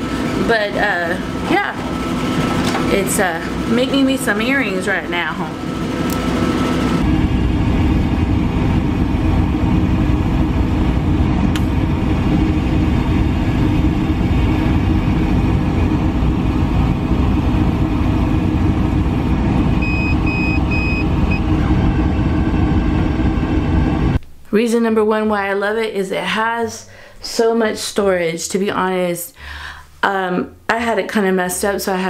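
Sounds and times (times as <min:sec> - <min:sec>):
laser cutter drone: 0:00.0 - 0:24.2.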